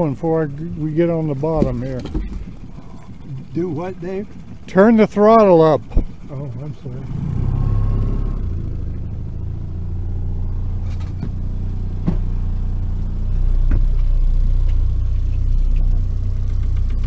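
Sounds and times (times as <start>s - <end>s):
outboard motor humming: 0.0s - 17.0s
gear clicking and knocking: 1.3s - 6.9s, 13.6s - 17.0s.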